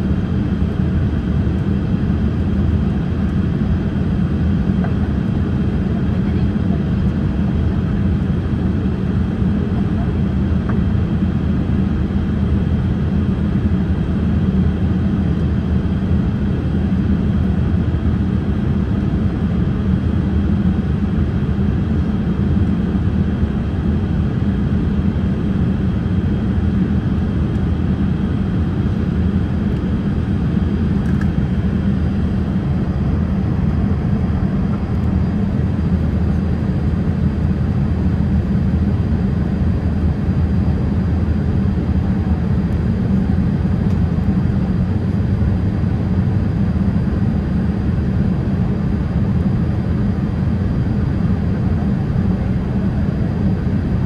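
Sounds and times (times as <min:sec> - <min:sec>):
airliner cabin engine rush: 0:00.0 - 0:54.0.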